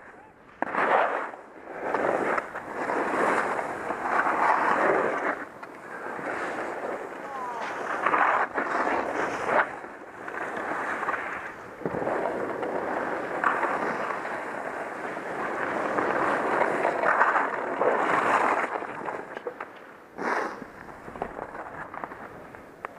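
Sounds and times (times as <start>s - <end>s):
skis scraping over snow: 0.0s - 22.9s.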